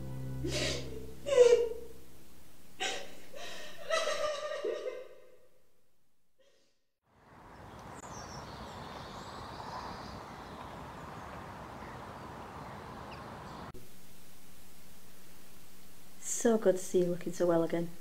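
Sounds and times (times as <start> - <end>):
outdoor background noise: 7.0 - 18.0
bird chirps: 7.4 - 13.7.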